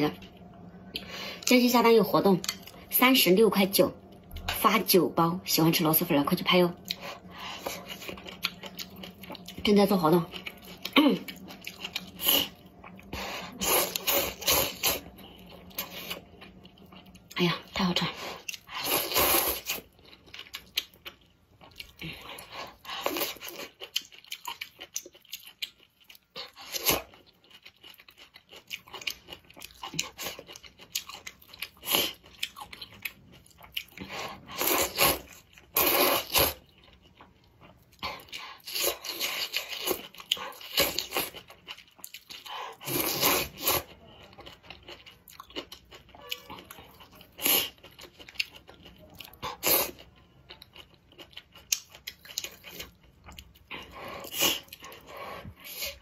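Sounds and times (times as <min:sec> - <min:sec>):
wet chewing: 0:06.8 - 0:09.6, 0:18.3 - 0:56.0.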